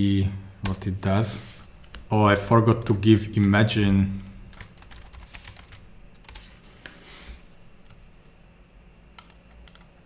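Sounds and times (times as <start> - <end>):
typing on a computer keyboard: 4.5 - 6.4, 9.2 - 9.9.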